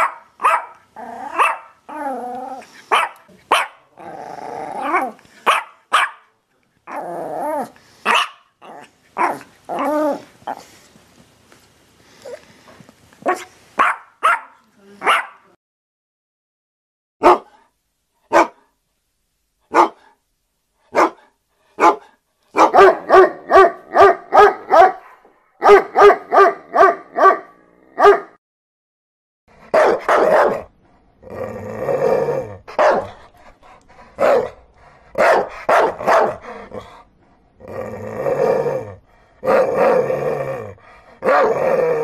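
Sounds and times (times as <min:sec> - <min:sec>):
dog barking: 0:00.0 - 0:01.8, 0:02.9 - 0:03.9, 0:04.9 - 0:06.3, 0:08.0 - 0:08.5, 0:09.2 - 0:09.9, 0:13.2 - 0:15.5, 0:17.2 - 0:17.6, 0:18.3 - 0:18.7, 0:19.7 - 0:20.2, 0:20.9 - 0:28.4, 0:29.7 - 0:30.7, 0:32.7 - 0:33.2, 0:34.2 - 0:34.6, 0:35.2 - 0:36.4.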